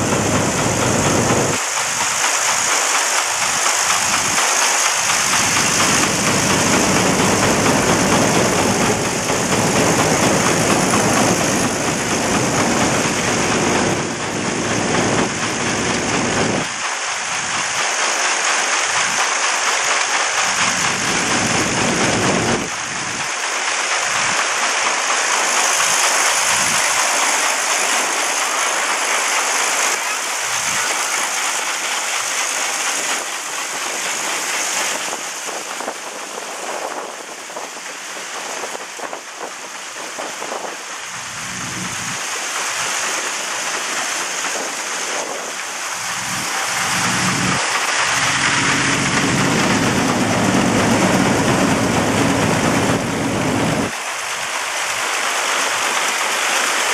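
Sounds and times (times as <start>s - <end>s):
threshing machine running: 0.0s - 35.3s, 41.0s - 44.8s, 45.5s - 54.0s
grain pouring into a wagon: 1.5s - 13.2s, 22.6s - 35.3s.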